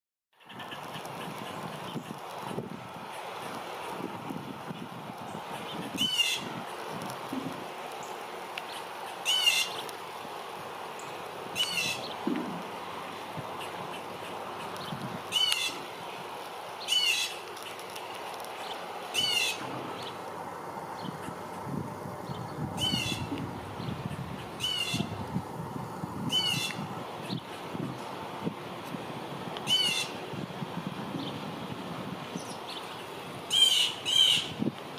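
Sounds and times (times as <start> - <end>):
blue jay harsh calls: 5.3 - 6.9, 8.0 - 9.9, 10.9 - 12.6, 13.5 - 17.9, 18.6 - 20.2, 22.3 - 25.2, 26.2 - 28.1, 29.6 - 30.2, 32.3 - 34.6.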